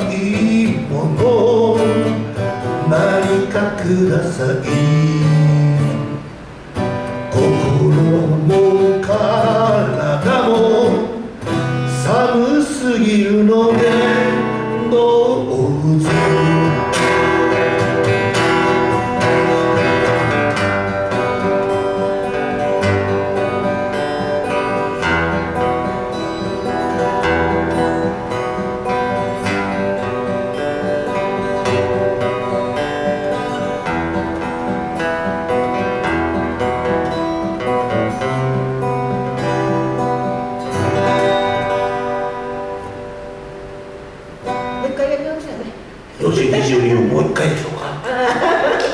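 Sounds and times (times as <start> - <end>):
acoustic guitars playing: 0.0 - 48.9.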